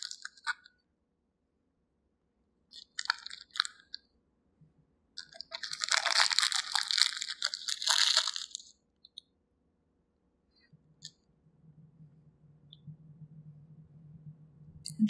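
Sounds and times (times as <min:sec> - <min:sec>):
plastic wrapper crinkling: 0:00.0 - 0:00.7, 0:02.7 - 0:04.0, 0:05.2 - 0:08.7.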